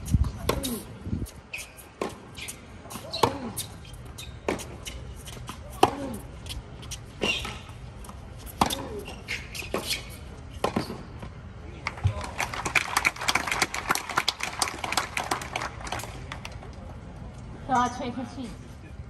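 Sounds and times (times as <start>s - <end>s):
tennis ball bouncing: 4.4s - 6.2s, 7.0s - 11.3s
rackets hitting tennis ball: 4.4s - 11.2s
people clapping: 11.8s - 16.8s.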